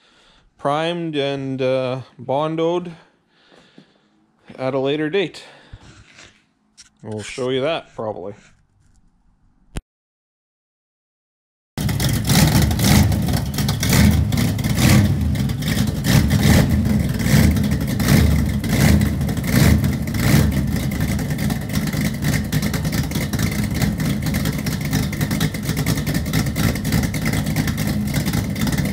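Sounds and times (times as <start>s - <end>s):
vehicle engine rumbling: 11.8s - 28.9s.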